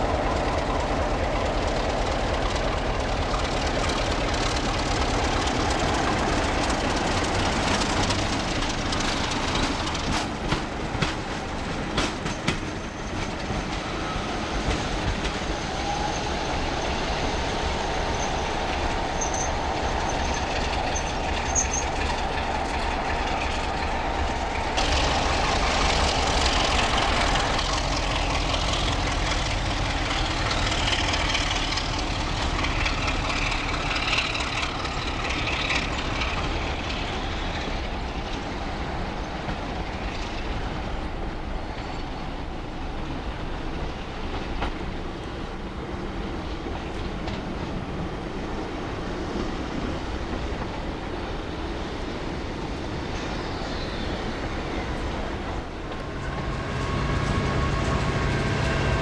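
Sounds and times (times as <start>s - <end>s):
diesel locomotive engine running: 0.0s - 59.0s
high wheel squeals: 15.4s - 29.4s.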